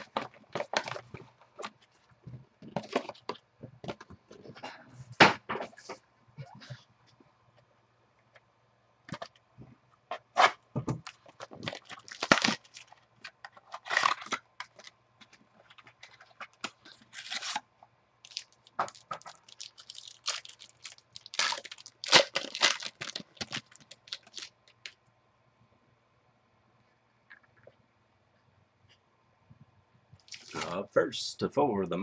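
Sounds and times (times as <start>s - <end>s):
foil wrapper tearing and crinkling: 11.1s - 13.0s, 13.6s - 14.9s, 15.8s - 17.6s, 18.3s - 24.8s.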